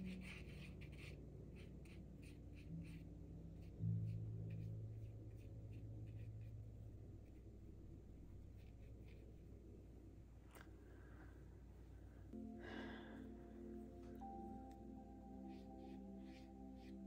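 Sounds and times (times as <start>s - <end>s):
paintbrush scratching on paper: 0.0s - 7.7s, 8.4s - 9.7s, 15.2s - 17.0s
soft background music: 0.0s - 10.2s, 12.0s - 17.0s.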